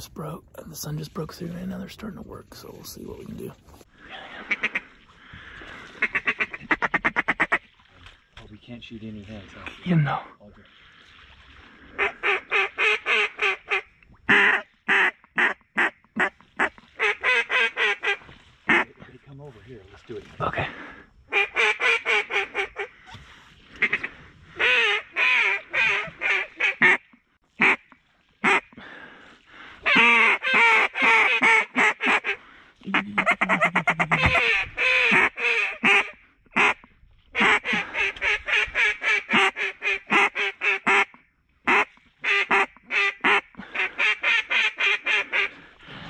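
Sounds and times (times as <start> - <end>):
duck call quacks: 6.0 - 7.6, 12.0 - 18.9, 21.3 - 22.9, 23.8 - 28.7, 29.9 - 45.5
duck call chattering notes: 27.6 - 27.8, 29.9 - 36.8, 37.4 - 45.5.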